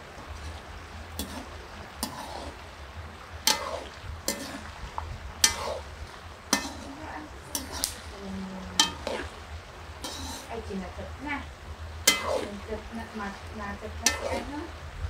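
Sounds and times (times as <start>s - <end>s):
frying sizzle: 0.0s - 15.0s
metal spoon scraping a wok: 1.2s - 2.6s, 3.4s - 4.7s, 5.4s - 8.2s, 8.8s - 9.4s, 10.0s - 10.6s, 12.0s - 12.7s, 13.8s - 14.7s.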